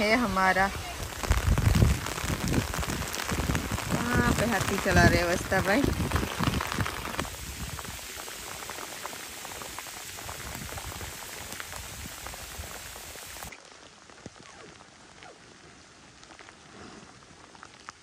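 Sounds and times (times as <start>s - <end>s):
steady rain patter: 0.0s - 18.0s.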